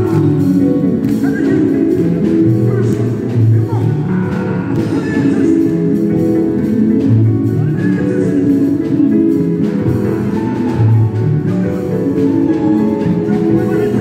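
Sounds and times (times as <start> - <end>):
live gospel band music: 0.0 - 14.0.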